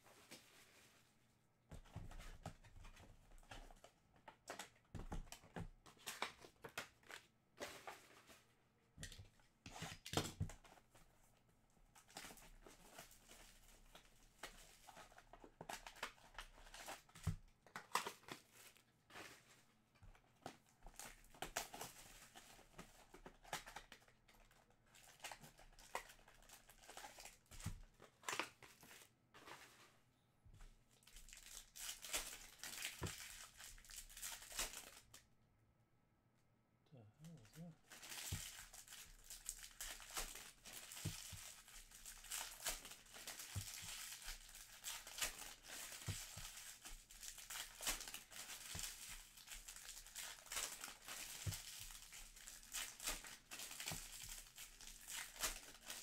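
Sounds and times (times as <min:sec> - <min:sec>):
wrappers crinkling and tearing: 0:03.4 - 0:08.4, 0:12.0 - 0:19.5, 0:20.4 - 0:29.1, 0:31.0 - 0:35.2, 0:37.2 - 0:56.0.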